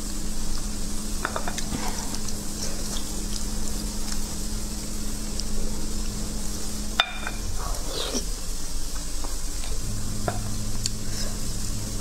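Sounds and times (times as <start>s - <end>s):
background hiss: 0.0s - 12.0s
faint low hum: 0.0s - 12.0s.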